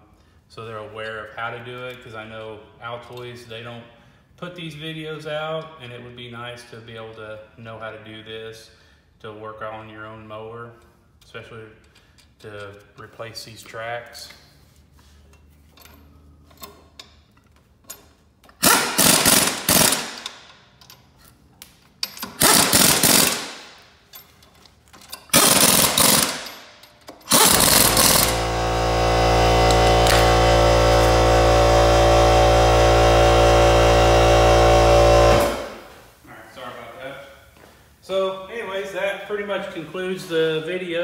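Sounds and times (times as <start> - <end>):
air impact wrench hammering: 18.5 - 20.5, 22.2 - 23.9, 25.2 - 36.0.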